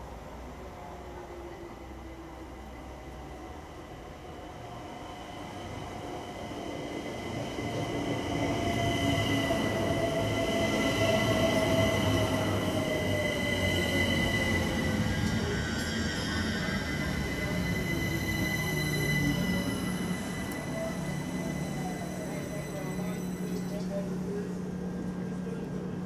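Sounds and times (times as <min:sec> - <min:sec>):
electric train slowing: 0:00.0 - 0:26.0
high steady squeal: 0:07.7 - 0:23.9.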